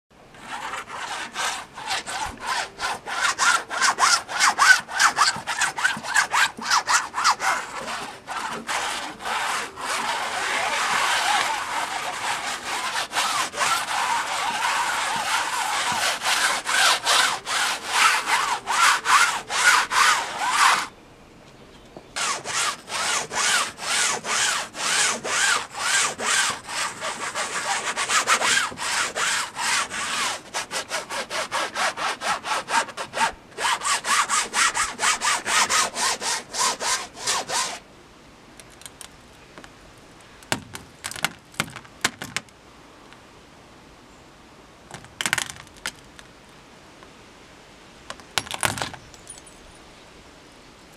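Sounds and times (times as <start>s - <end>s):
sponge scrubbing wet paint: 0.4s - 20.9s, 22.2s - 37.8s.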